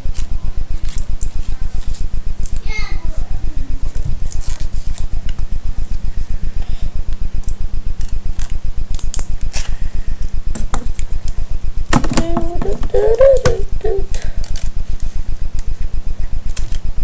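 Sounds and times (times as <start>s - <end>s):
low pulsing microphone hum: 0.0s - 17.0s.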